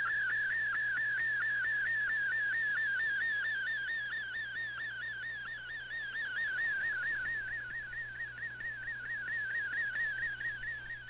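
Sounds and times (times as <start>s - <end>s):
faint steady hum: 0.0s - 11.0s
warbling radio data tone: 2.9s - 11.0s.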